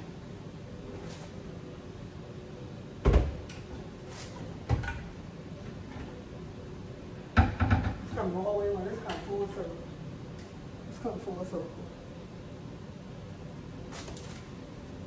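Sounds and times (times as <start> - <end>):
wooden cabinet doors knocking: 7.4 - 8.0.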